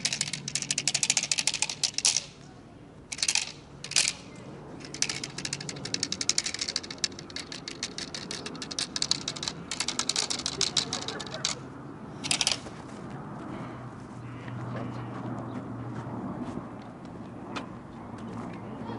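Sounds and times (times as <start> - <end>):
rapid dry clicking rattle: 0.0 - 2.4, 3.1 - 11.6, 12.2 - 12.6.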